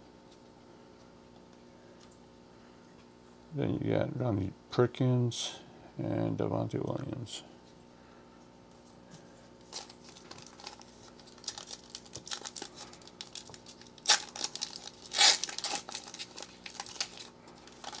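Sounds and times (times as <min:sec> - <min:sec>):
foil wrapper crinkling: 0:09.6 - 0:18.0
wrapper ripping: 0:09.7 - 0:18.0.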